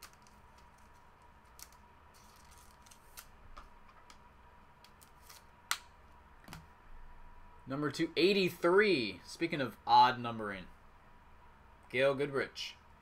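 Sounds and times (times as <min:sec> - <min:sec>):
trading cards rustling and clicking: 0:00.0 - 0:04.2, 0:04.8 - 0:05.8.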